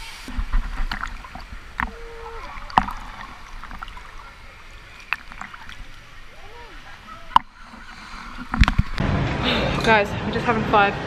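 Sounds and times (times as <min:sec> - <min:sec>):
water lapping and sloshing: 0:00.0 - 0:11.0
small water splashes: 0:00.3 - 0:09.0.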